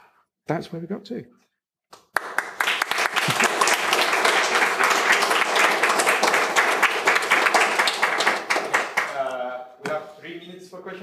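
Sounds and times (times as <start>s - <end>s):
audience applauding: 2.0s - 9.3s.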